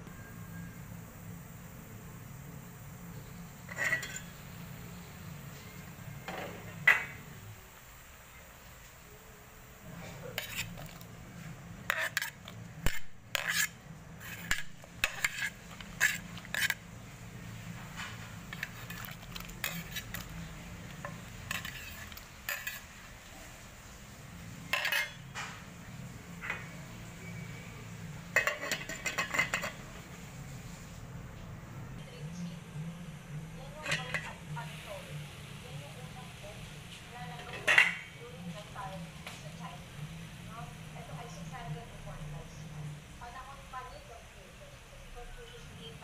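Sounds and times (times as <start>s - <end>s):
low steady hum: 0.0s - 46.0s
plates and spoon clinking on pot: 3.7s - 4.4s, 6.2s - 7.2s, 11.9s - 16.8s, 17.8s - 22.9s, 24.7s - 25.6s, 28.3s - 29.9s, 33.8s - 34.4s, 37.4s - 38.2s.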